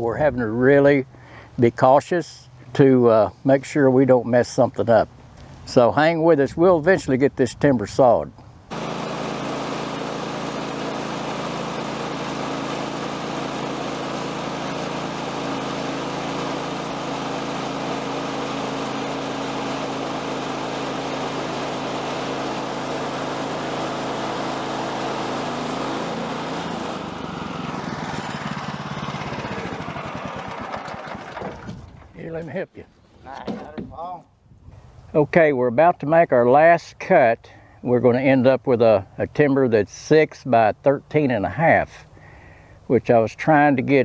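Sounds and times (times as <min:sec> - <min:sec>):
sawmill gas engine under load: 0:08.7 - 0:32.2.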